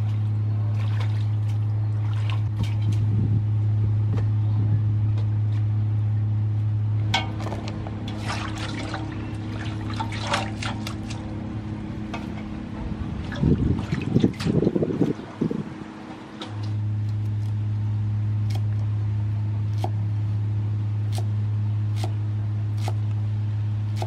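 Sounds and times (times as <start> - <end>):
water splashing and dripping: 0.0 - 3.1, 8.0 - 11.4, 13.2 - 15.2
steady low hum: 0.0 - 24.0.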